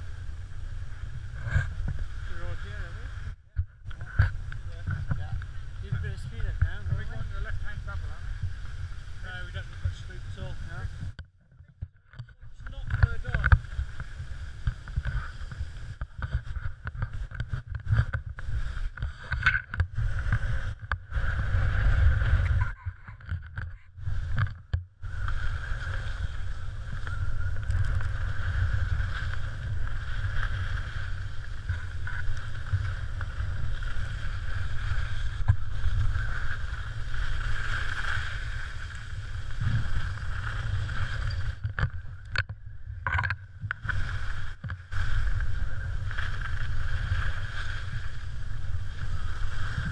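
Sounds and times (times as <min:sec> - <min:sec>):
skis hissing over snow: 0:00.0 - 0:03.4, 0:05.5 - 0:11.1, 0:13.0 - 0:17.2, 0:18.4 - 0:19.3, 0:19.9 - 0:22.6, 0:25.1 - 0:41.6, 0:43.8 - 0:49.9
wind rumbling on microphone: 0:00.0 - 0:49.9.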